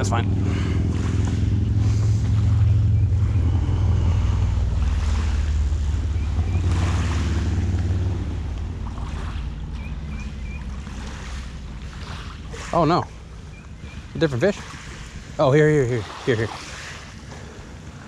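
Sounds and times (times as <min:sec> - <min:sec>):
waves lapping at shore: 0:00.0 - 0:18.0
wind rumbling on microphone: 0:00.0 - 0:18.0
faint bird chirps: 0:09.8 - 0:10.7.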